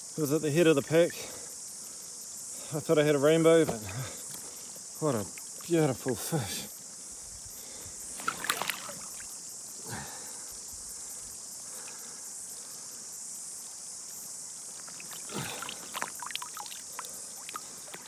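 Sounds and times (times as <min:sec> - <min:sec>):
high-pitched insect chorus: 0:00.0 - 0:18.0
water splashing: 0:08.2 - 0:09.3, 0:14.8 - 0:18.0
fish dripping water: 0:14.8 - 0:18.0.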